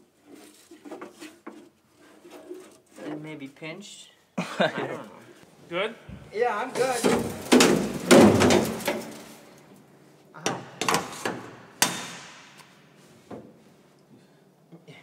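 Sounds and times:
sheet metal panels clanking: 6.7s - 9.5s
sharp metal knocks: 10.4s - 12.7s.

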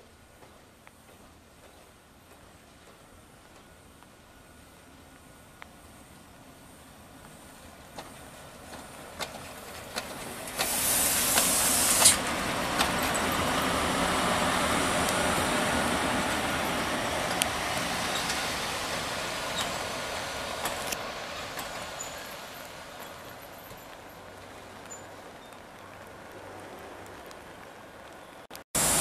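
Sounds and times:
electric locomotive rolling past: 1.8s - 29.0s
wheel clicks over rail joints: 7.8s - 13.8s, 20.5s - 26.0s
loud hiss: 10.3s - 22.9s, 28.8s - 29.0s.

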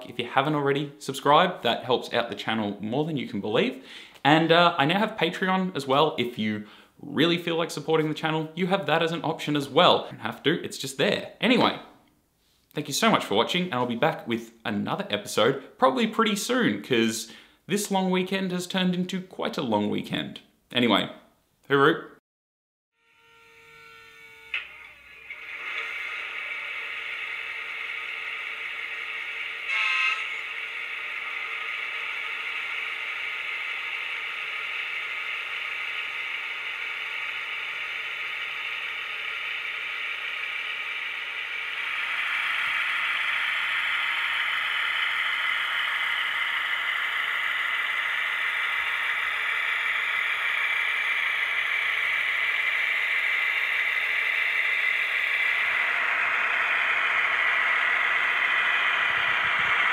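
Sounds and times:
model train diesel engine sound: 0.0s - 11.4s, 24.5s - 59.9s.

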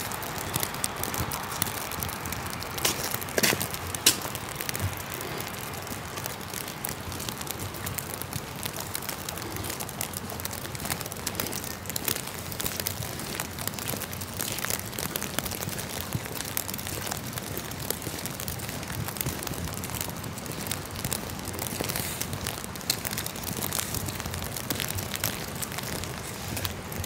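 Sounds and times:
raindrops ticking close by: 0.0s - 27.0s
steady rain: 0.0s - 27.0s.

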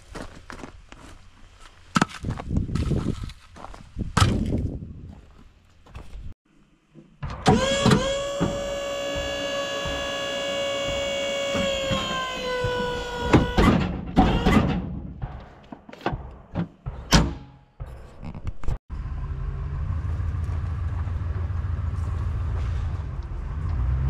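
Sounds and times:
clunks and knocks: 6.9s - 18.8s
small electric motor whining: 7.5s - 13.6s.

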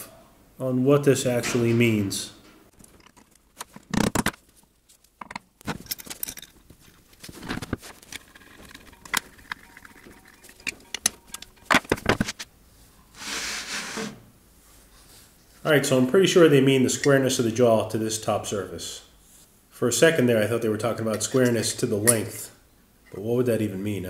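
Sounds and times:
metal clicks and knocks: 2.7s - 4.4s, 5.2s - 12.4s
metal scraping: 5.7s - 12.5s.

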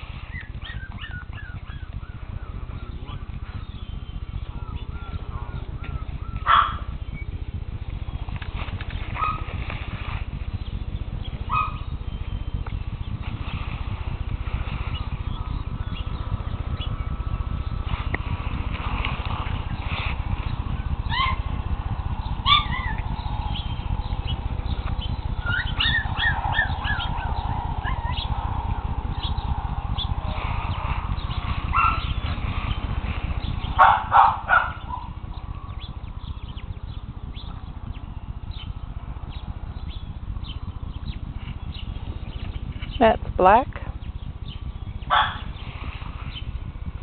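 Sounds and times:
low rumble: 0.0s - 47.0s
puppies squeaking and whimpering: 0.4s - 1.9s, 25.4s - 27.2s
puppy yapping: 0.6s - 1.9s, 5.8s - 6.9s, 11.5s - 11.8s, 22.4s - 23.0s, 25.5s - 27.2s, 33.8s - 35.1s, 45.1s - 45.4s.

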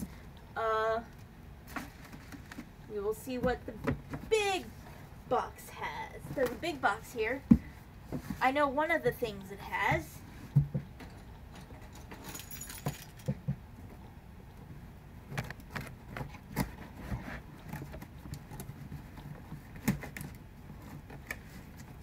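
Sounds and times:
keys jangling: 11.9s - 13.3s.

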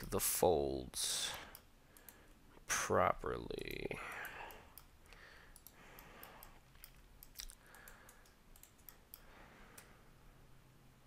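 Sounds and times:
faint mouse and keyboard clicks: 3.6s - 10.0s.

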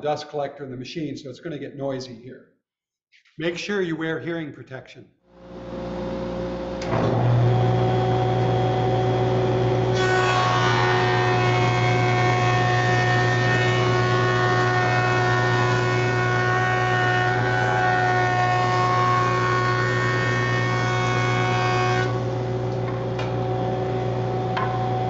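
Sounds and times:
dust collector running: 5.4s - 13.5s
jointer cutting wood: 9.8s - 23.4s.

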